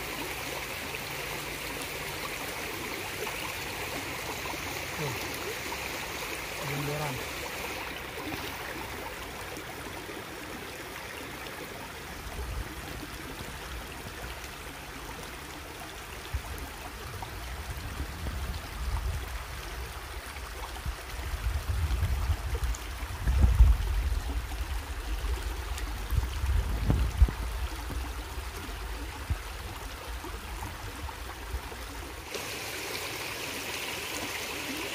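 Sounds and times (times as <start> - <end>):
stream rushing over stones: 0.0 - 34.9
wind buffeting microphone: 16.3 - 20.1, 20.8 - 31.8.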